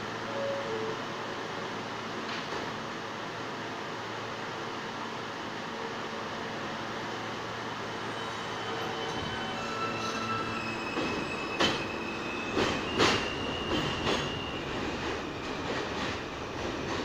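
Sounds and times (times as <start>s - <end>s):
subway train running rumble: 0.0s - 17.0s
train wheels clacking on rail joints: 12.5s - 17.0s.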